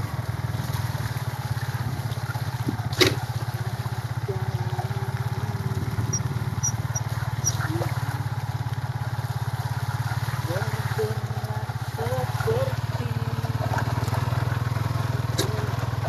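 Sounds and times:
small motorcycle engine running: 0.0s - 16.0s.

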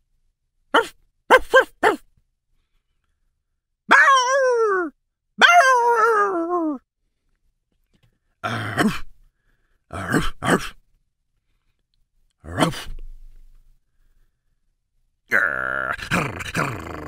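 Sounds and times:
person imitating gruff barks: 0.7s - 2.1s, 3.9s - 6.8s, 8.4s - 9.1s, 9.9s - 10.8s, 12.4s - 13.0s, 15.3s - 17.0s
person imitating dog howls: 0.8s - 2.0s, 3.9s - 6.8s, 15.3s - 17.0s.

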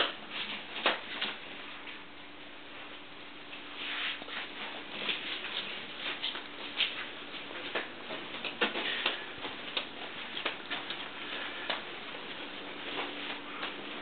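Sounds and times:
faint steady hum: 0.0s - 14.0s
footsteps on hard floor: 4.2s - 14.0s.

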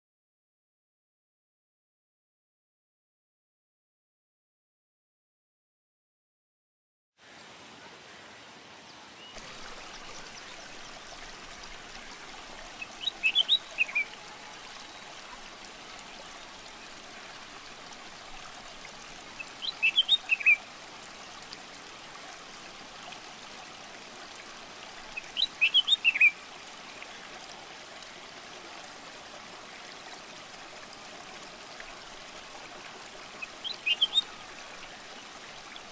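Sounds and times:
bird chirping: 12.8s - 14.2s, 19.4s - 20.6s, 25.4s - 26.3s, 33.6s - 34.3s.

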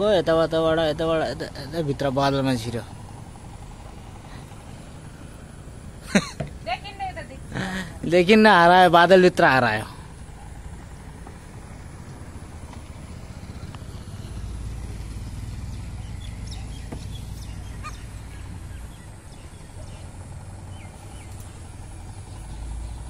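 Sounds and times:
faint bird chirps: 13.8s - 23.0s.

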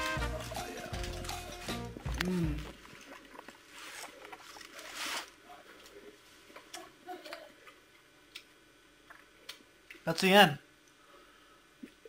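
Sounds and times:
plastic bag and foil crinkling: 0.0s - 6.0s.

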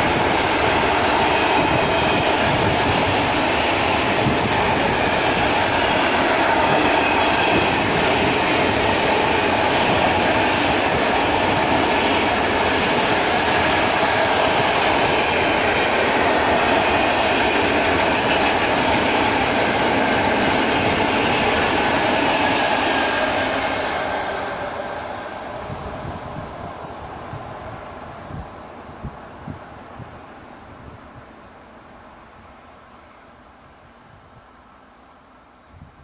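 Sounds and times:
freight train wheels clattering: 0.0s - 26.1s.

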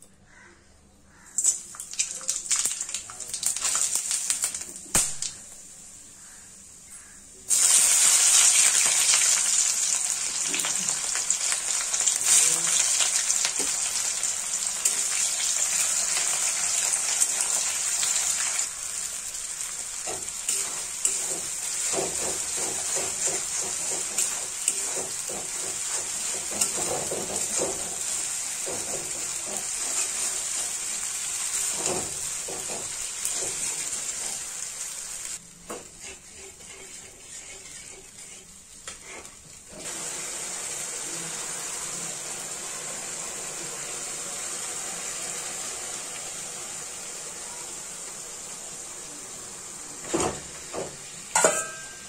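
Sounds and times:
onions sizzling in hot oil: 1.1s - 52.0s
metal spatula scraping pan: 20.5s - 30.8s, 35.8s - 39.4s.

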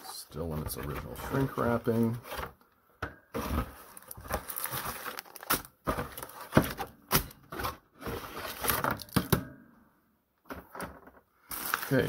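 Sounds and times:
plastic packaging crinkling: 3.4s - 6.9s, 11.5s - 12.0s.

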